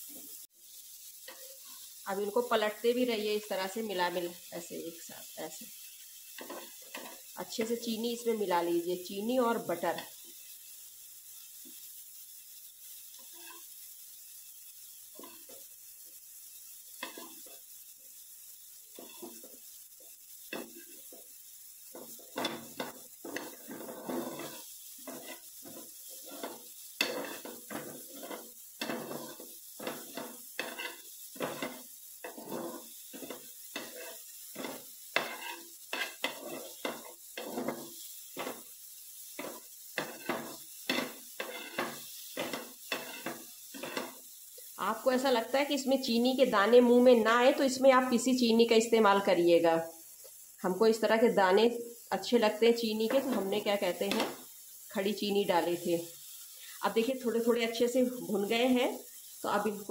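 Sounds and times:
banana slices sizzling in pan: 0.0s - 59.9s
spatula scraping and tapping pan: 1.2s - 1.9s, 5.8s - 7.4s, 13.1s - 13.8s, 15.0s - 15.8s, 16.9s - 17.8s, 18.9s - 44.7s, 52.9s - 54.5s.

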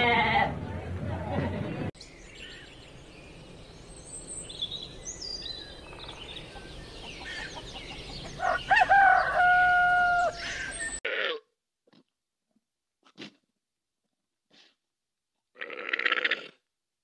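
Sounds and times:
small birds chirping: 1.7s - 11.0s
rooster crowing: 8.3s - 11.0s.

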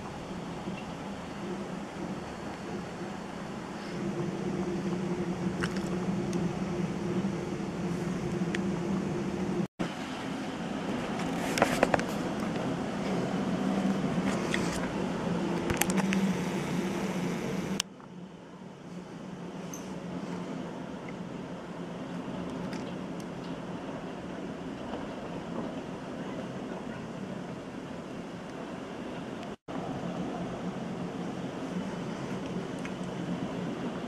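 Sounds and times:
heavy rain and hail roar: 0.0s - 17.8s.

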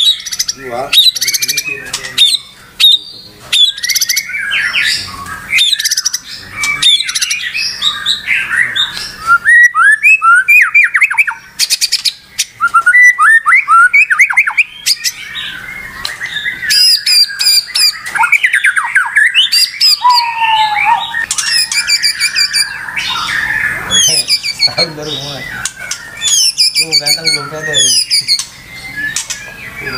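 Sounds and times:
bird harsh squawking: 0.0s - 29.9s
bird singing loud whistles and trills: 0.0s - 29.9s.

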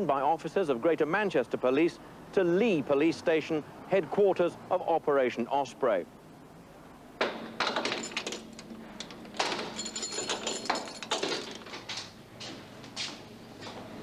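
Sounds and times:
steel door clanking and rattling: 7.2s - 12.1s.

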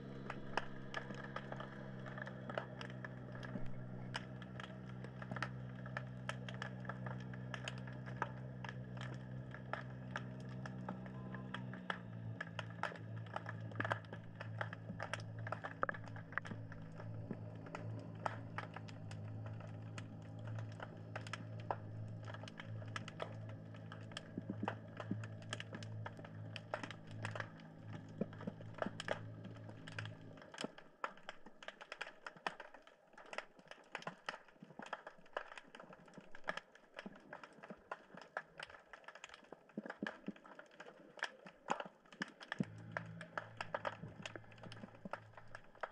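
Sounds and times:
low hum: 0.0s - 30.5s, 42.6s - 45.9s
snapping shrimp clicks underwater: 0.0s - 45.9s.

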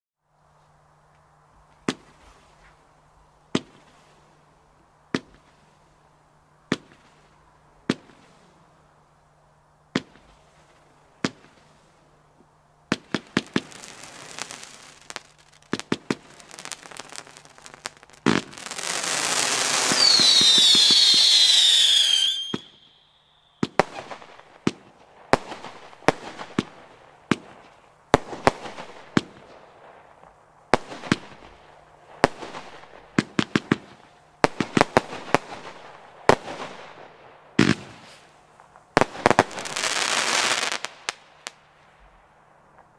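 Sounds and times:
firework battery shots: 12.9s - 24.8s
firework rush with falling whistles: 13.0s - 24.7s.

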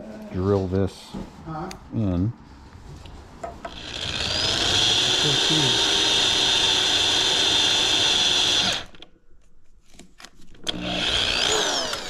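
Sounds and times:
electric drill drilling: 3.7s - 9.0s, 10.6s - 12.0s.

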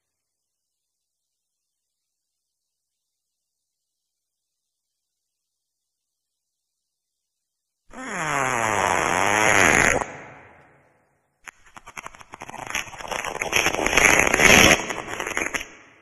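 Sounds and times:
wet fart sounds: 7.9s - 10.2s.

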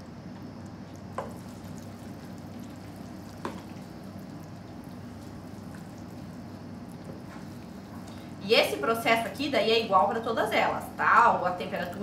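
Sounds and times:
candy mixture bubbling in saucepan: 0.0s - 12.0s
spatula stirring: 1.0s - 8.1s.

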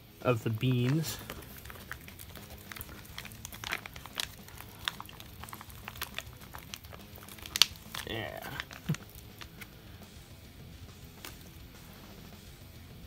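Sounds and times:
plastic pouch crinkling: 0.4s - 9.8s, 11.0s - 11.6s.

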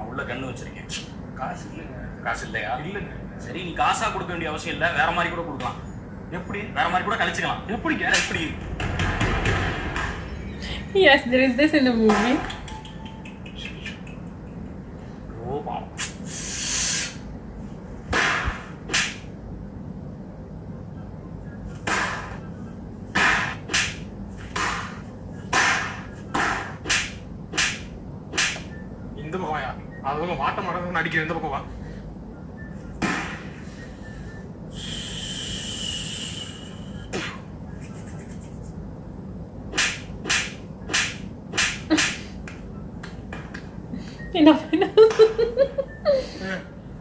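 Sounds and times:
steady hiss: 15.9s - 17.3s, 34.7s - 38.5s.

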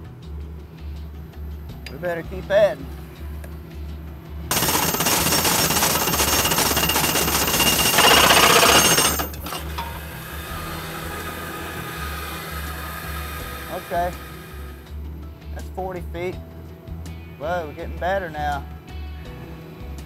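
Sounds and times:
rod driver hammering: 4.5s - 10.0s.

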